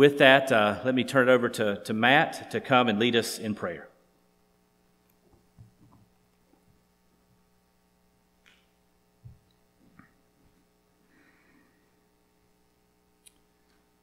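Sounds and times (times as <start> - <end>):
steady low hum: 0.0 - 14.0
soft thumps and clicks: 5.3 - 6.8.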